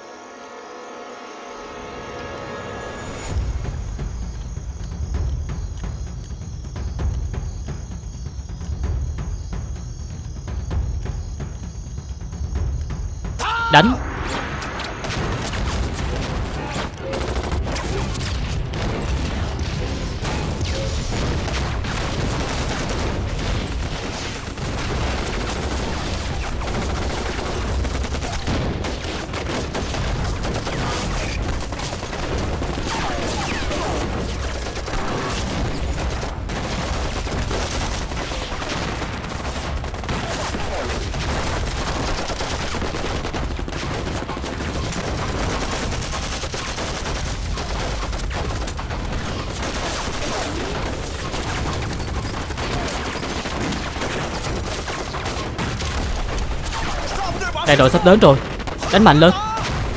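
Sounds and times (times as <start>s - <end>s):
explosions: 13.7s - 59.9s
rifle and machine-gun fire: 13.8s - 59.9s.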